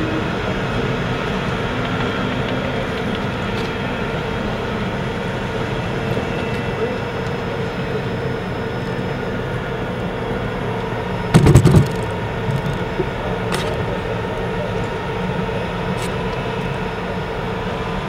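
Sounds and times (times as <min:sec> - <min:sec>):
tank engine whine: 0:00.0 - 0:18.0
tank tracks clattering: 0:11.4 - 0:13.8.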